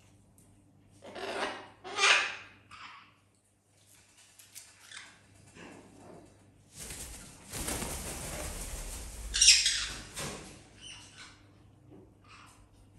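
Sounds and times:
parrot wings flapping: 0:06.7 - 0:10.7.

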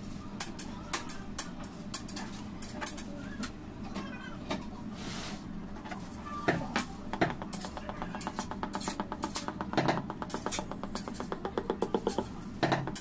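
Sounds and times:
clicks and taps: 0:06.5 - 0:13.0
knocks on cake board: 0:06.5 - 0:13.0.

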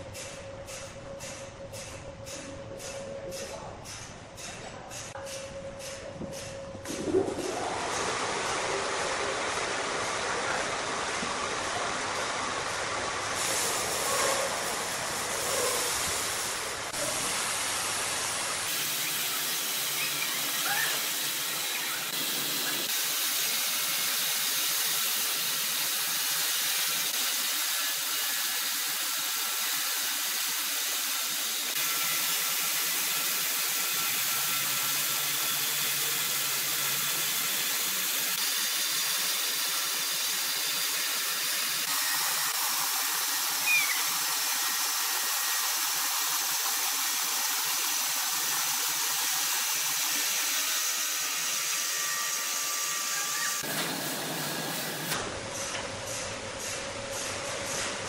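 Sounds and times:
sharp squeak: 0:43.6 - 0:44.2
band saw cutting log: 0:48.5 - 0:55.2.

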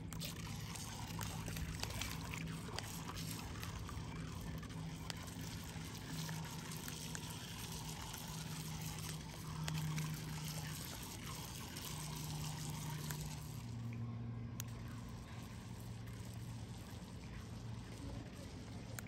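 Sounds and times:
low hum: 0:00.0 - 0:19.0
faint small clicks: 0:13.9 - 0:15.0.

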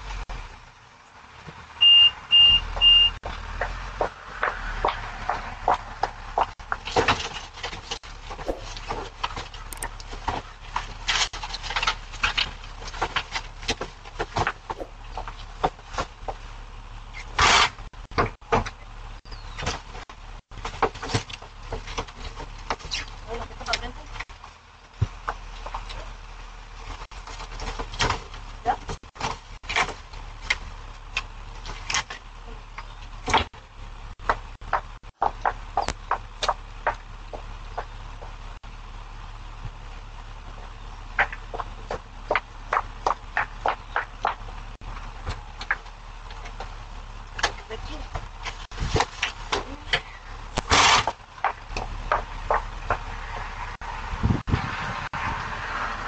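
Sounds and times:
low steady hum: 0:02.8 - 0:54.5
steady low hum: 0:05.2 - 0:20.7
footsteps on concrete: 0:08.4 - 0:09.0, 0:14.8 - 0:15.8.

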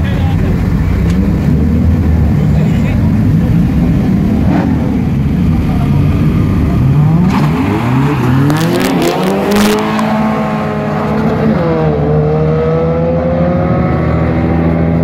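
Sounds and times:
car engines revving hard: 0:00.0 - 0:15.0.

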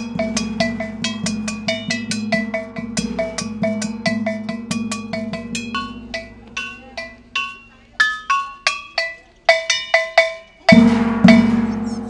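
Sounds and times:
metallic gong notes: 0:00.0 - 0:12.0
loud deep gong strokes: 0:10.8 - 0:12.0.

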